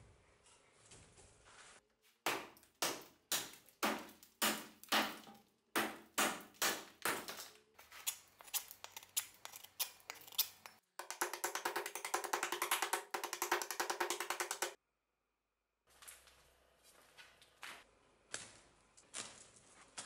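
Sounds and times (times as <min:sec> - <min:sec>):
axe chopping into log: 0:02.3 - 0:07.4.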